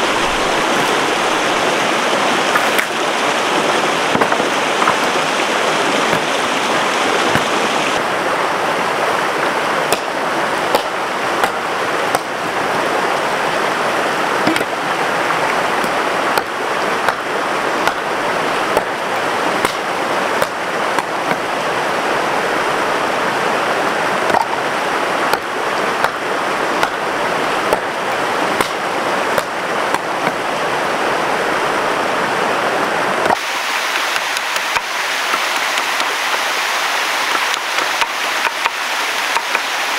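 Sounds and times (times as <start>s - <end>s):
stream water rushing: 0.0s - 39.9s.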